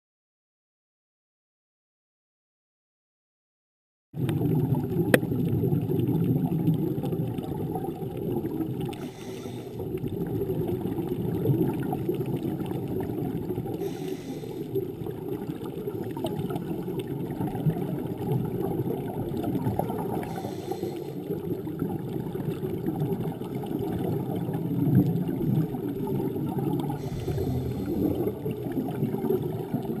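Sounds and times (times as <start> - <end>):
underwater bubbling and gurgling: 4.2 - 30.0
regulator breathing hiss: 9.0 - 9.8, 13.8 - 14.7, 20.3 - 21.2, 27.0 - 28.3.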